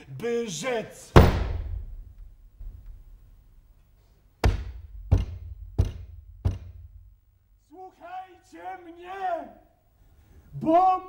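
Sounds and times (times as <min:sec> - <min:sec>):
wooden trunk lid slamming: 0:01.2 - 0:03.0
knocks on wooden trunk: 0:04.4 - 0:06.8.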